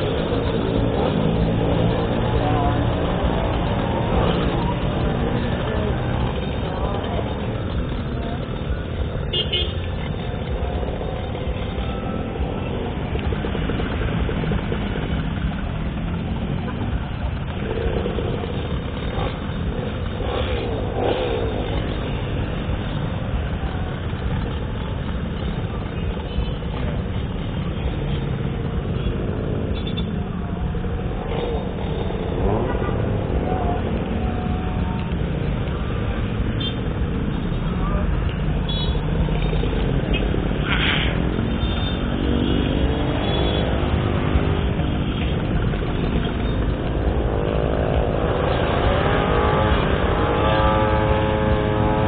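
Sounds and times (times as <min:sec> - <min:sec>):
surrounding traffic: 0:00.0 - 0:52.0
small engine running: 0:39.0 - 0:52.0.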